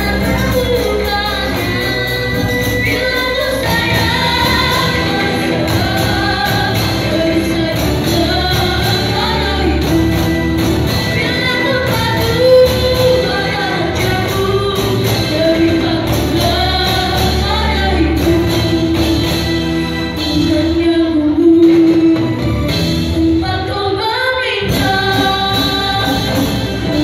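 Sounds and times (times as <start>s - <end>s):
children singing: 0.0s - 20.4s
frame drums beating: 0.0s - 20.9s, 24.6s - 27.0s
girl singing lead: 0.0s - 27.0s.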